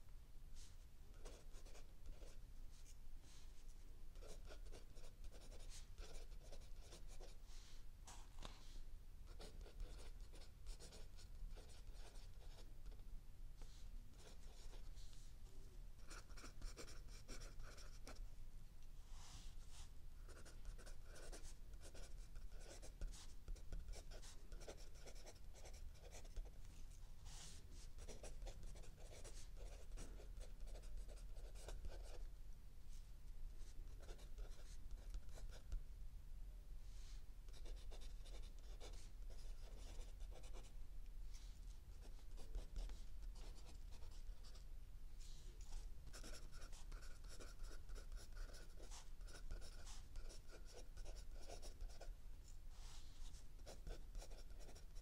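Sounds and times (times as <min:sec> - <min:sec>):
faint low hum: 0:00.0 - 0:55.0
pencil scratching on paper: 0:01.2 - 0:02.4, 0:04.2 - 0:07.4, 0:09.3 - 0:13.0, 0:14.1 - 0:15.1, 0:16.0 - 0:18.2, 0:19.2 - 0:26.5, 0:27.2 - 0:32.3, 0:33.9 - 0:35.7, 0:37.5 - 0:40.7, 0:42.0 - 0:44.6, 0:45.6 - 0:52.1, 0:52.8 - 0:55.0.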